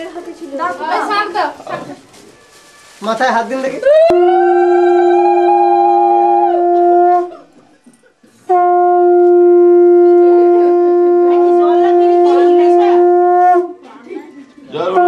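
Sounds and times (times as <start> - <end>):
conch shell blasts: 4.1 - 7.5, 8.5 - 13.8.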